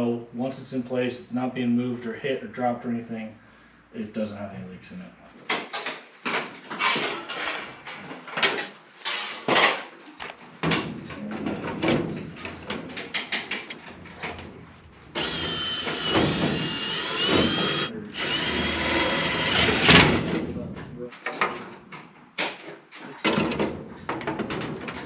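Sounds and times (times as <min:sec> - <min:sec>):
cordless drill driving screw: 0:15.2 - 0:20.0.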